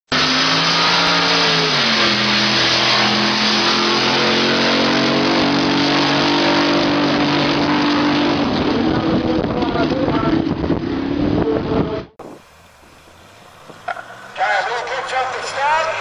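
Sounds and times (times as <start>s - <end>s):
boat engine running hard: 0.5s - 12.1s.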